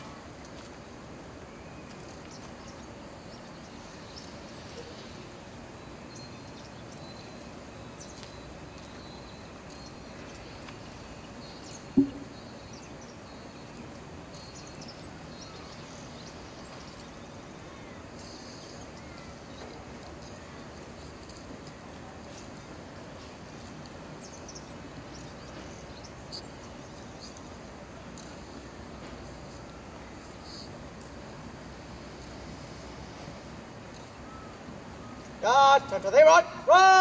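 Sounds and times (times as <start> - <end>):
small birds chirping: 0.0 - 35.5
background ambience: 0.0 - 37.0
sharp low thump: 12.0 - 12.3.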